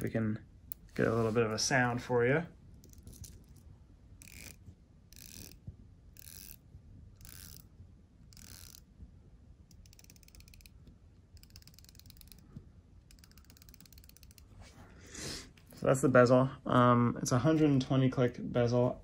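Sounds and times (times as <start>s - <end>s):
watch bezel ratcheting clicks: 4.2s - 5.6s, 6.2s - 6.6s, 7.2s - 7.7s, 8.3s - 8.8s, 9.7s - 10.8s, 11.4s - 12.4s, 13.1s - 14.5s.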